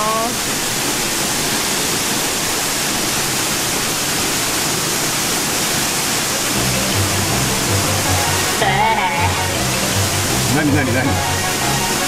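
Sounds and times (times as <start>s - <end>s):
water rushing: 0.0s - 12.0s
background music beat: 6.6s - 12.0s.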